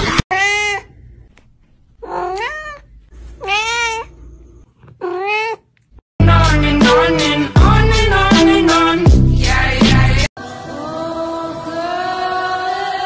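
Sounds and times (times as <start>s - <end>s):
cat meowing: 0.3s - 1.0s, 2.0s - 4.1s, 4.9s - 5.7s.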